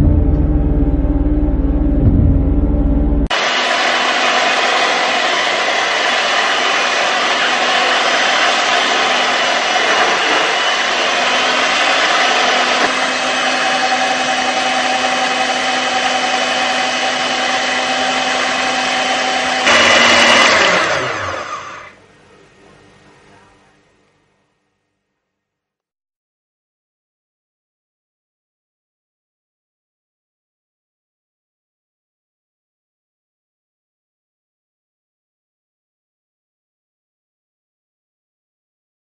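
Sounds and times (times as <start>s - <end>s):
electric motor whining: 3.3s - 22.0s.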